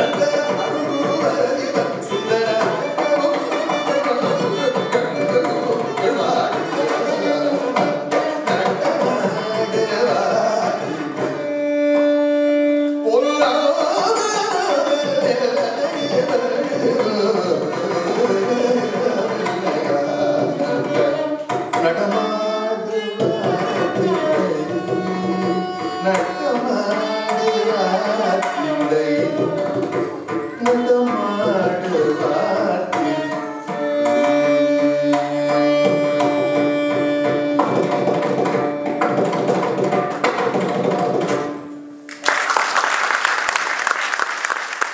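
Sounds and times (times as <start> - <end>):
man singing: 0.0 - 11.4, 12.8 - 39.4
drum accompaniment: 0.0 - 12.6, 13.2 - 42.6
applause: 42.1 - 44.9.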